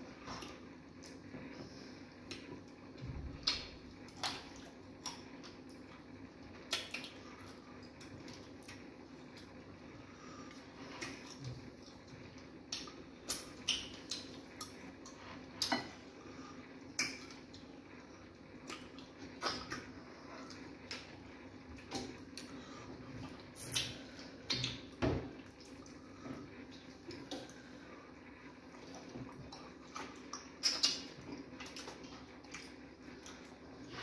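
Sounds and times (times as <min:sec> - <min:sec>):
wet chewing and smacking: 0:10.4 - 0:16.0, 0:18.6 - 0:22.6, 0:28.5 - 0:34.0.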